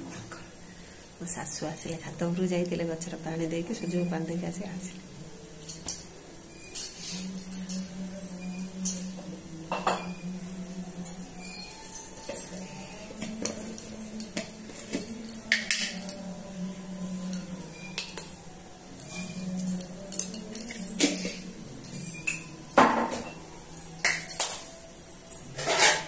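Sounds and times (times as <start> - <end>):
spoon clinking against glass: 5.6 - 18.4, 19.0 - 26.0.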